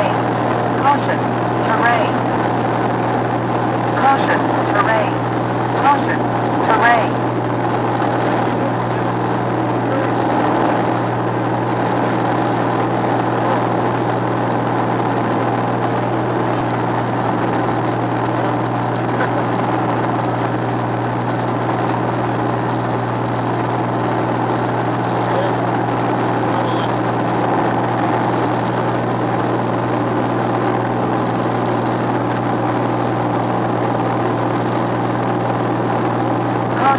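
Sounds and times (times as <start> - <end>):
propeller aircraft engine droning: 0.0 - 36.9.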